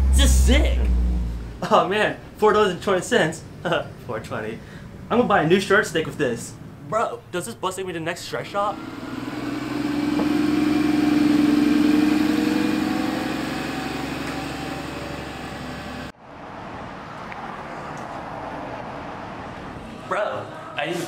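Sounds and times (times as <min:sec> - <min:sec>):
bus engine pulling away: 0:00.0 - 0:01.6, 0:08.6 - 0:21.0
background noise: 0:00.0 - 0:08.8, 0:16.1 - 0:21.0.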